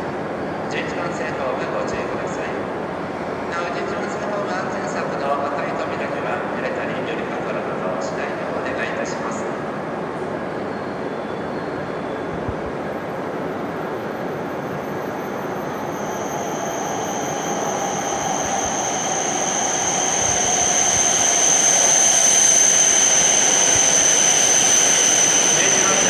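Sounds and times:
steady high whine: 0.0s - 26.0s
train rushing noise: 12.3s - 26.0s.

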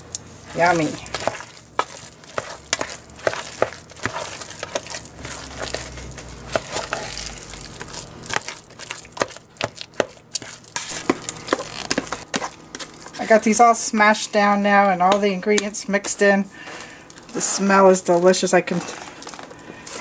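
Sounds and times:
spoon mashing potatoes: 0.4s - 13.6s.

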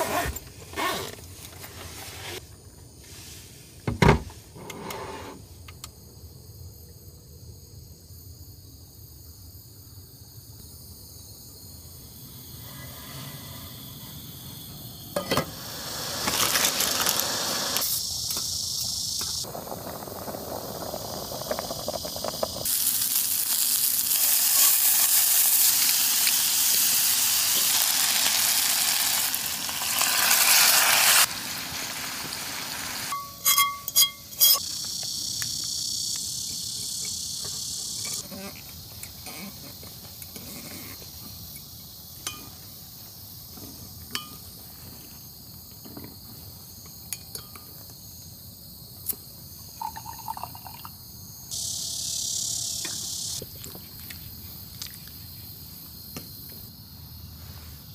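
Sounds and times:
food sizzling and bubbling in pot: 15.2s - 18.4s, 19.2s - 34.7s.

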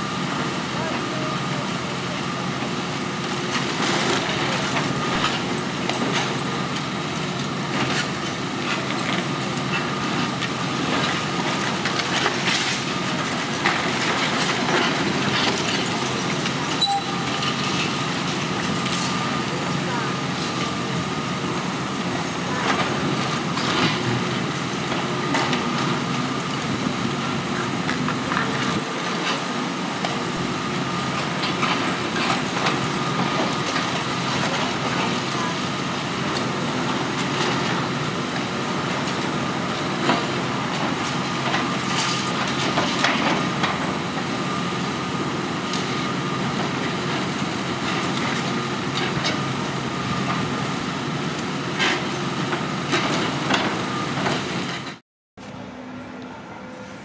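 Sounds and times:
excavator engine running: 0.0s - 57.0s
thin steady whine: 55.4s - 57.0s.

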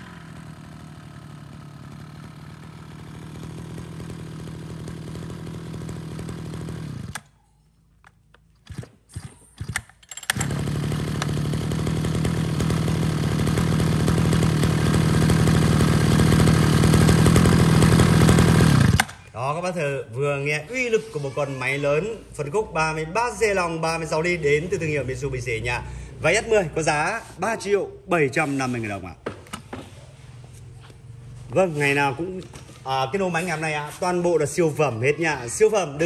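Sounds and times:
brush cutter engine running: 0.0s - 7.4s, 8.6s - 19.4s.

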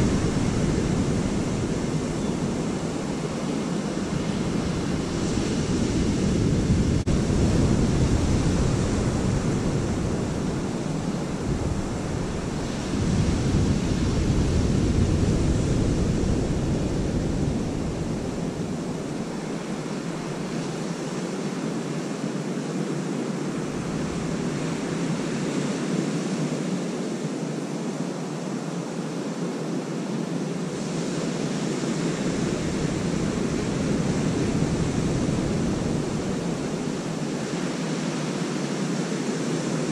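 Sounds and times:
wind buffeting microphone: 0.0s - 21.5s, 30.6s - 39.9s.

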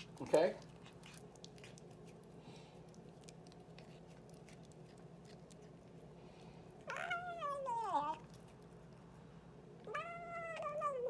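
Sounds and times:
cat chewing toy: 0.0s - 11.0s
cat meowing: 6.8s - 8.3s, 9.8s - 11.0s.

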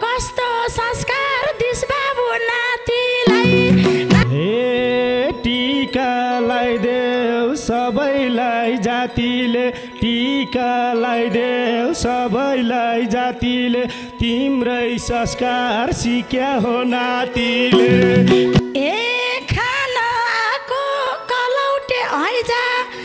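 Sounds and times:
fast ornamented folk melody: 3.3s - 19.2s
hand drum strokes: 17.8s - 18.8s.

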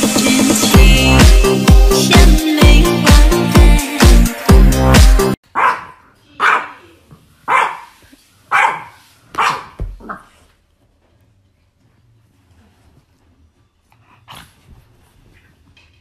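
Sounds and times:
dance music with steady beat: 0.0s - 5.4s
puppy barking: 5.5s - 6.9s, 7.5s - 10.3s.

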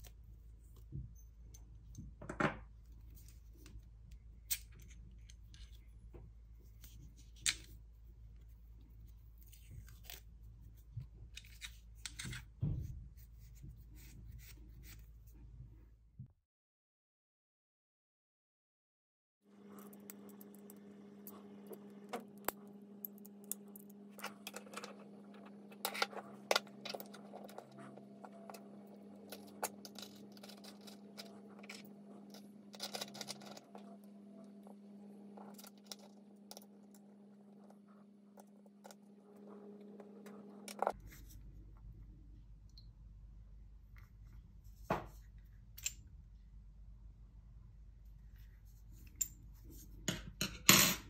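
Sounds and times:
steady hum: 19.5s - 44.9s.

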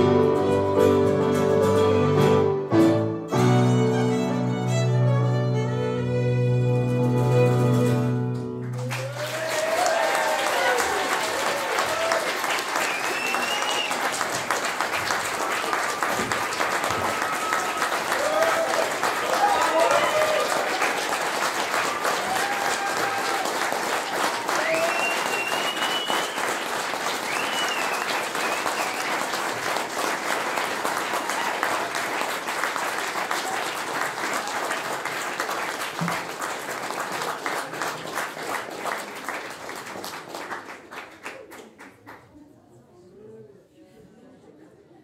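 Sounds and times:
audience applauding: 7.0s - 42.5s
high calls from crowd: 16.0s - 26.5s.

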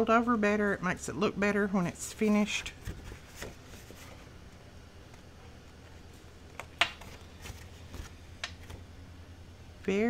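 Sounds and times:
paper being handled: 2.1s - 4.3s, 7.0s - 8.8s.

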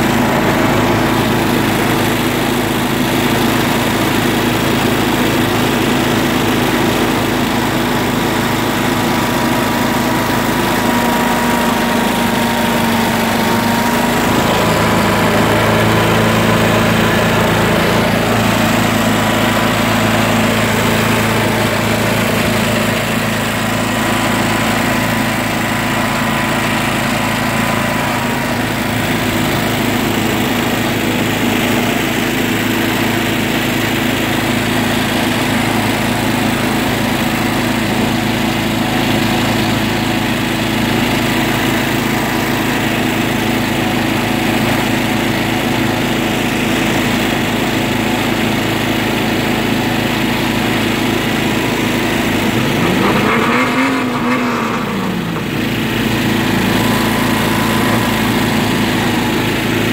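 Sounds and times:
lawn tractor engine running: 0.0s - 59.9s.

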